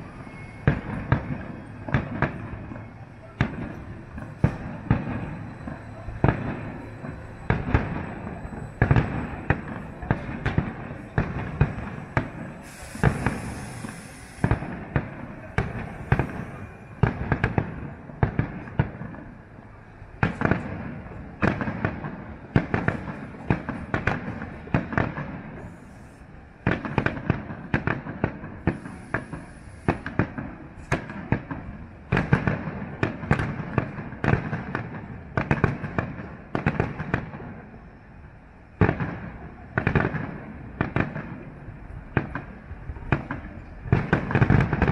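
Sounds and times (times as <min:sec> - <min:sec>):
fireworks shell bursts: 0:11.6 - 0:14.8
high hiss: 0:12.6 - 0:14.7.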